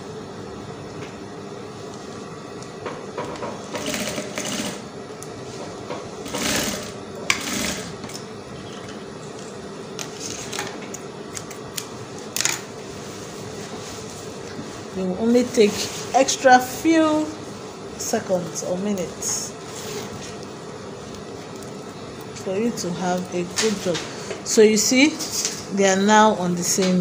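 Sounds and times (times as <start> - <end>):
sewing machine motor hum: 3.3 - 4.9, 6.2 - 8.9.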